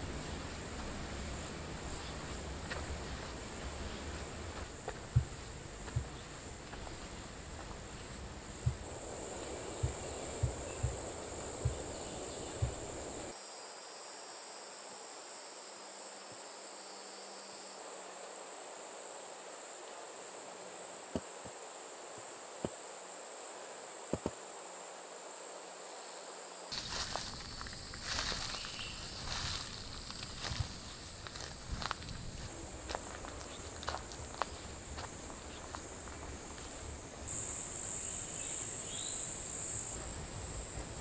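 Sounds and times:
insects buzzing: 0:00.0 - 0:41.0
soft thumps: 0:04.6 - 0:13.3.

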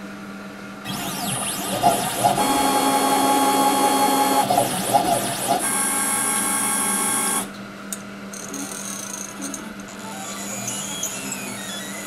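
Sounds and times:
motors whining: 0:00.9 - 0:07.5, 0:08.4 - 0:12.0.

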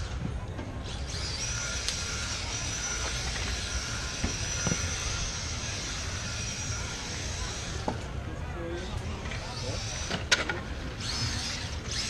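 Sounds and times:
high electric motor whine: 0:00.0 - 0:12.0.

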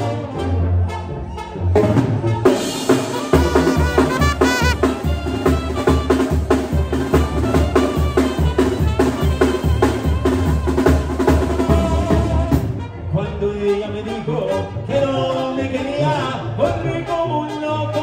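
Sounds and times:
banda music with brass: 0:00.0 - 0:18.0
snare drum hits: 0:02.9 - 0:09.0
bass drum beat: 0:02.9 - 0:12.8.

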